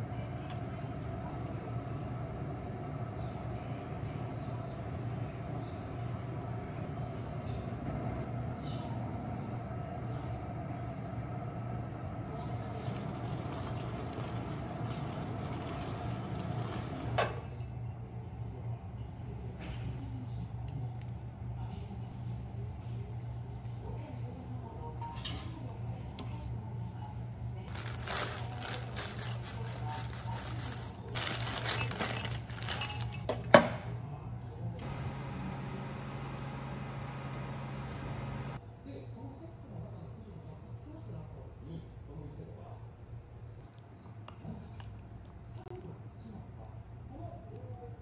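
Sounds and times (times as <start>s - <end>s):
steady low hum: 0.0s - 38.8s
plastic bag crinkling: 27.7s - 33.3s.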